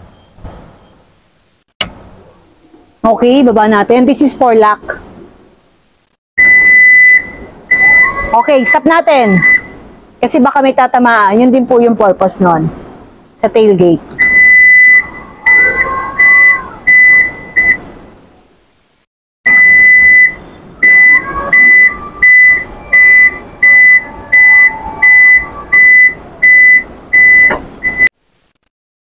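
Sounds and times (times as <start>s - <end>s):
warning buzzer beeping: 19.5s - 28.1s.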